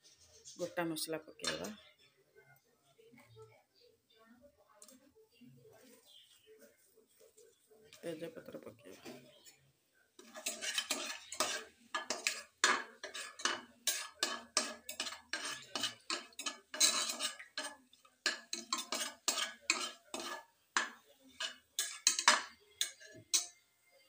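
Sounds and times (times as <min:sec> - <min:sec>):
spices frying in oil: 0:10.1 - 0:23.7
spatula scraping metal pot: 0:10.2 - 0:23.6.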